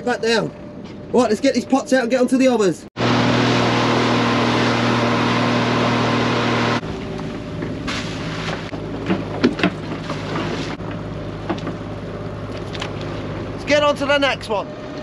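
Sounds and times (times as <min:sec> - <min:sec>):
low engine hum: 0:03.0 - 0:15.0
outboard motor running: 0:03.0 - 0:15.0
knocks and clatter of gear: 0:08.7 - 0:11.8.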